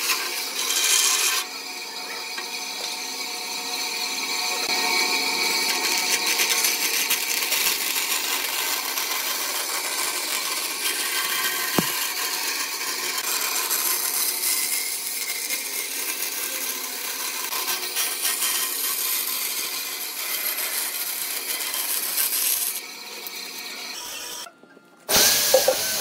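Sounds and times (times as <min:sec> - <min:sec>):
band saw cutting wood: 0:00.0 - 0:24.5, 0:25.1 - 0:26.0.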